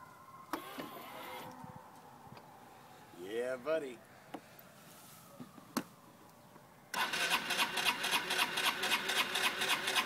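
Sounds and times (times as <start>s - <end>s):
electric starter cranking engine: 6.9s - 10.0s.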